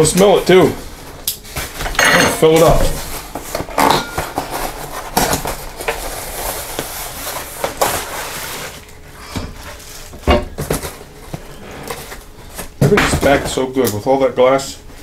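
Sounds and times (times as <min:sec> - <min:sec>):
plastic packing rustling: 0:00.0 - 0:13.8
cardboard box tearing and scraping: 0:02.9 - 0:08.8.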